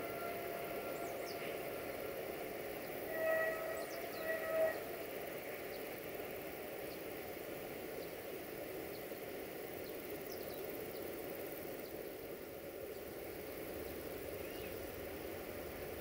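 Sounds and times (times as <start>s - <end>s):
steady background noise: 0.0s - 16.0s.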